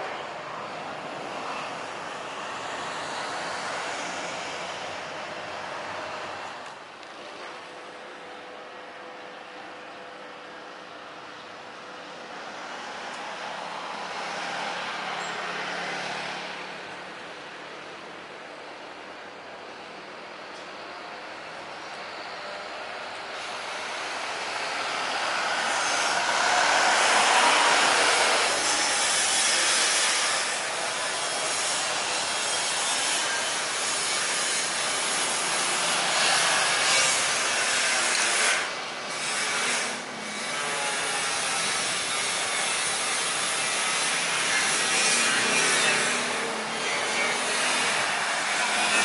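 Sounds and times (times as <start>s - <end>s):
jet engines roaring: 22.8s - 31.0s.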